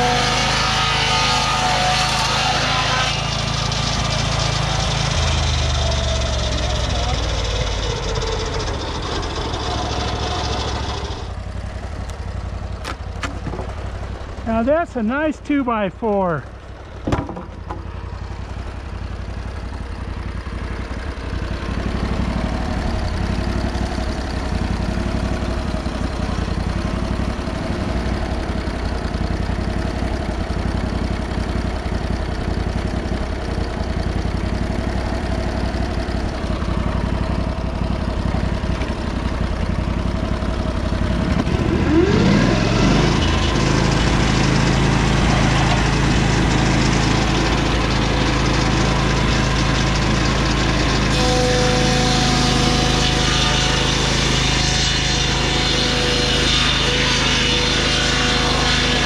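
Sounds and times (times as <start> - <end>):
engine revving up: 0.0 - 11.4, 41.0 - 59.0
sawmill engine idling: 0.0 - 59.0.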